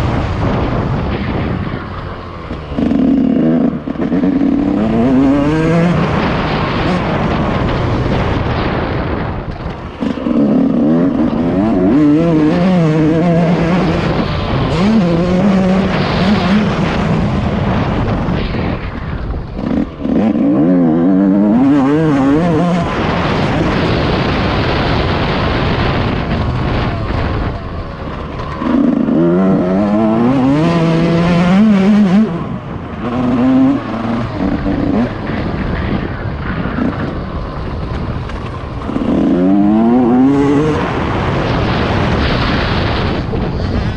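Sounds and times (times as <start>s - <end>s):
two-stroke dirt bike engine revving: 0.0s - 43.9s.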